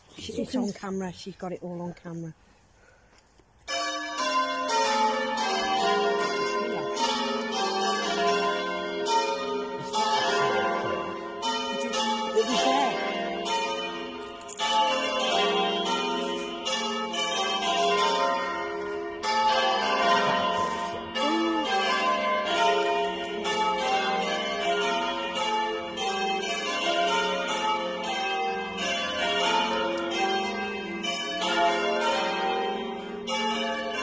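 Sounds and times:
church bells ringing: 3.7 - 34.0.

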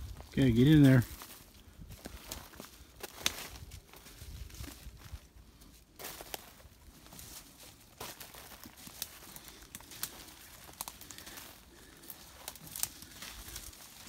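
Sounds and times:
footsteps through dry leaves: 0.0 - 14.0
twigs snapping: 2.0 - 3.6, 8.0 - 14.0.

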